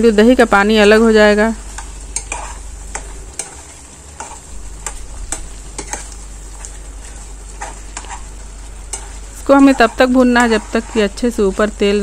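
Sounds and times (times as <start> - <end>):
soft sizzle: 0.0 - 12.0
ladle scraping a pan: 1.8 - 11.4.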